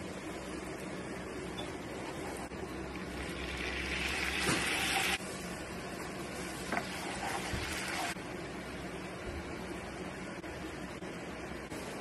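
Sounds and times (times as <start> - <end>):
butter sizzling in a pan: 3.2 - 5.2.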